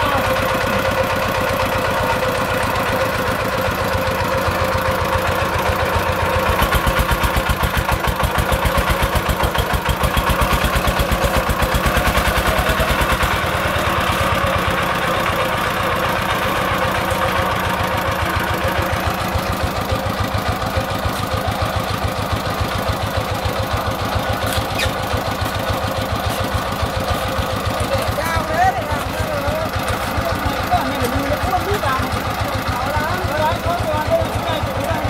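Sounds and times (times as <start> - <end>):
diesel engine chugging: 0.0 - 35.0.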